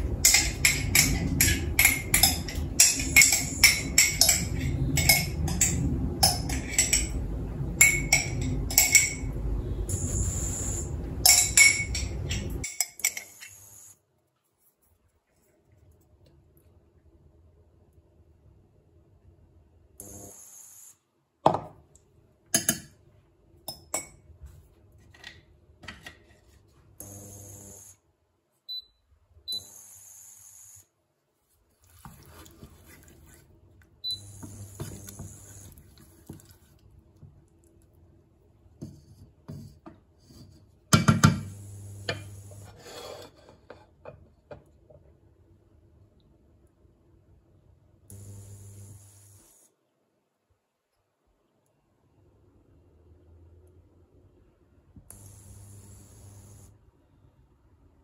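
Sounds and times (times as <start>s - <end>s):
metal spoon scraping glass jar: 0.2s - 7.2s
wooden spoon scraping a pan: 31.8s - 33.6s, 34.4s - 36.9s, 42.1s - 44.0s.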